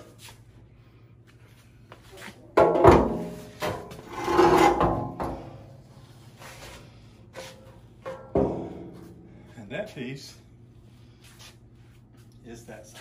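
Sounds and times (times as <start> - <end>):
metal panels scraping on concrete: 3.2 - 5.4.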